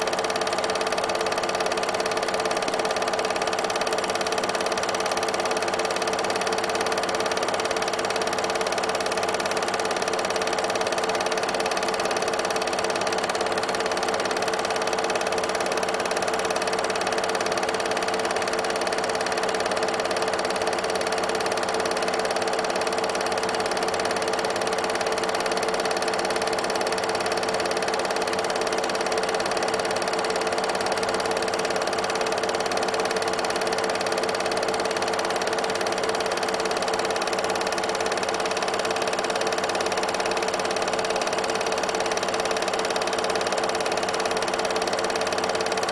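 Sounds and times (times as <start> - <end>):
film projector running: 0.0 - 45.9.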